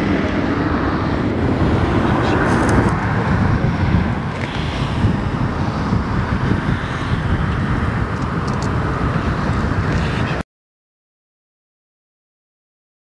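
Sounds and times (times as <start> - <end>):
distant jet airliner rumble: 0.0 - 10.4.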